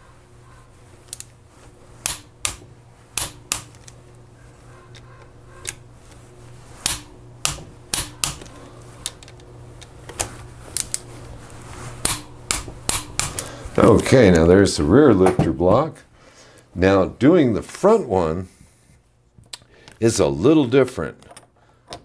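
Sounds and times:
torque wrench clicking: 12.0s - 13.5s.

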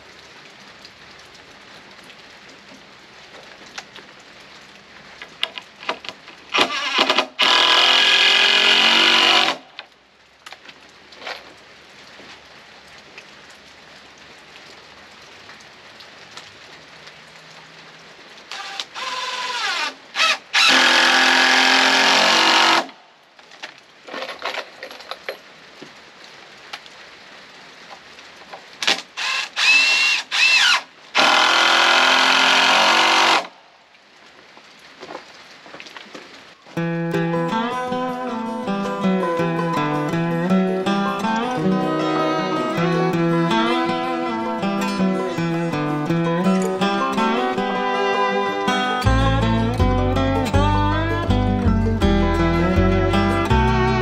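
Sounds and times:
power drill running: 6.6s - 9.6s, 18.5s - 22.9s, 29.2s - 33.5s.

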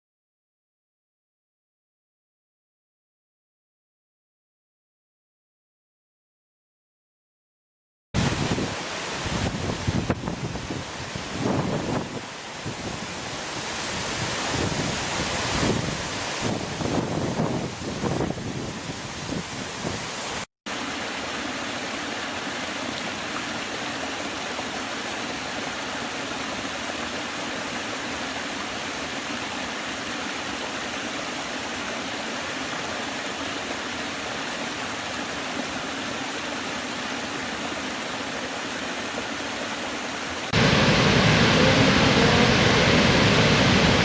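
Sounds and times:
wind gusts on microphone: 8.2s - 20.4s, 40.5s - 44.0s
water rushing over rocks: 8.2s - 44.0s
waterfall roaring: 8.2s - 44.0s.

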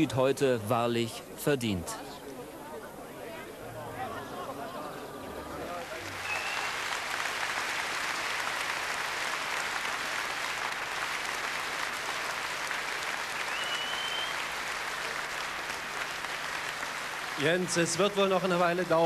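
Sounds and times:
audience applauding: 5.2s - 19.0s
short high whistle: 6.2s - 6.8s, 13.5s - 14.4s.

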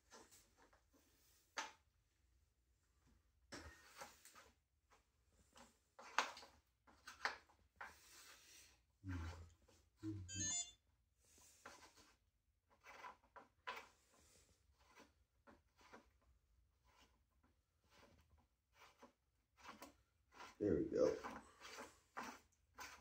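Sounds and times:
brief rising squeak: 10.3s - 10.8s.

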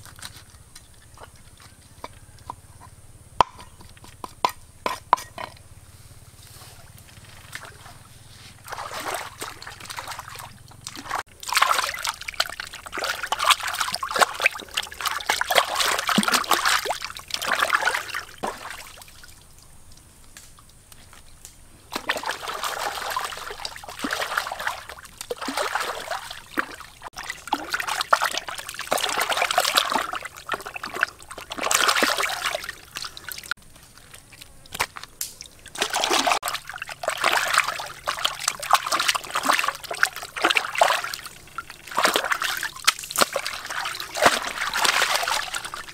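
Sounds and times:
hands splashing in stream water: 8.6s - 19.3s, 21.9s - 33.5s, 34.7s - 45.9s.

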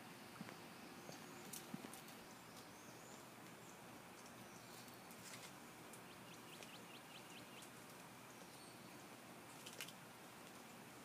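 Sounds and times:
faint outdoor hiss: 0.0s - 11.0s
small bird chirping: 6.0s - 9.8s.

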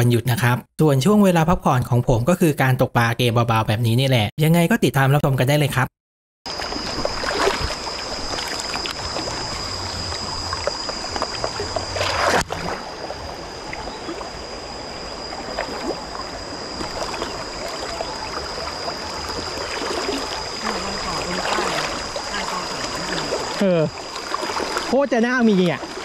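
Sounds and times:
stream flowing: 6.5s - 26.0s.

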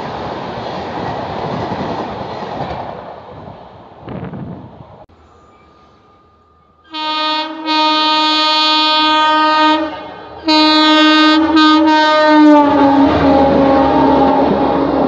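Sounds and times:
train coaches rushing by: 0.0s - 15.0s
train air horn blasts: 6.8s - 15.0s.

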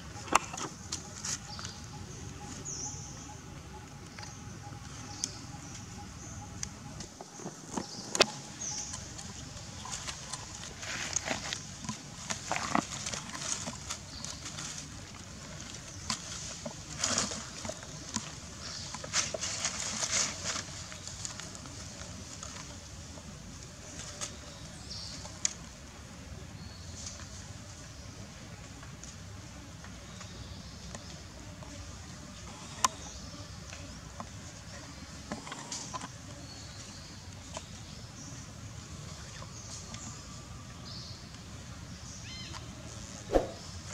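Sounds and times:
small clicks and rustles: 6.6s - 25.8s.

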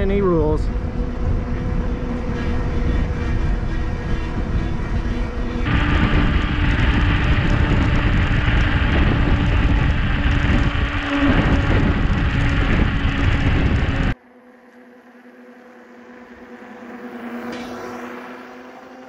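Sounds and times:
bike tyre noise: 0.0s - 14.2s
wind rushing over microphone: 0.0s - 14.2s
steady hum: 0.0s - 14.4s.

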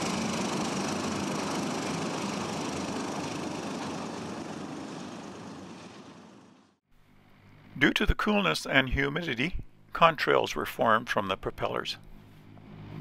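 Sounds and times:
turboprop engines roaring: 0.0s - 6.8s, 8.5s - 13.0s
thin high engine whine: 0.0s - 13.0s.

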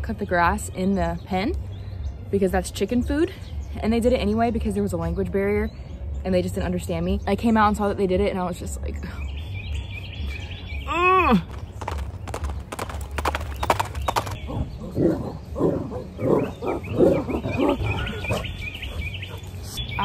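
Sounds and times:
dogs grunting and growling: 14.4s - 19.5s.

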